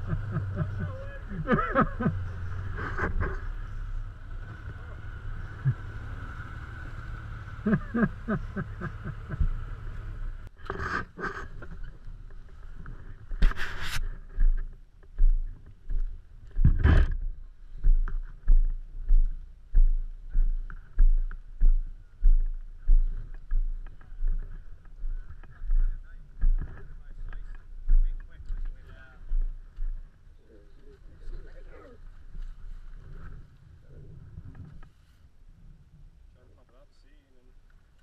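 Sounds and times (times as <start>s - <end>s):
vehicle engine running: 0.0s - 13.4s, 14.0s - 30.2s.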